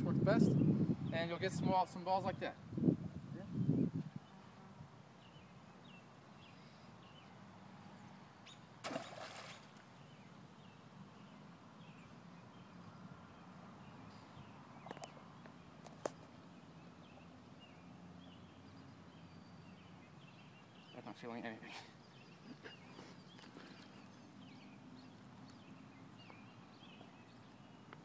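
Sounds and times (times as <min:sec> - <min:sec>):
faint birds chirping: 0:00.0 - 0:28.0
short splash in water: 0:08.8 - 0:09.8.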